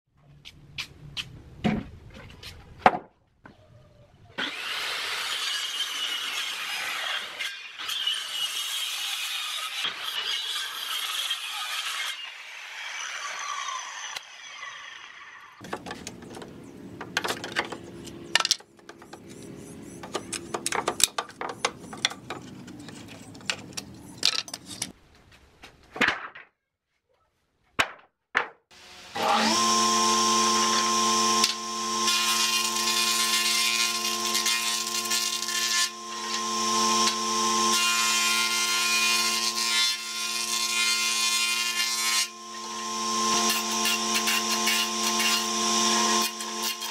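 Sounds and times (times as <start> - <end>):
wooden boards knocking and clattering: 2.8 - 3.2, 15.6 - 19.1, 20.0 - 24.9, 25.9 - 26.6, 27.8 - 28.6
circular saw winding down: 28.8 - 39.5, 42.0 - 46.9
jointer-planer whining: 28.8 - 39.6, 42.0 - 46.9.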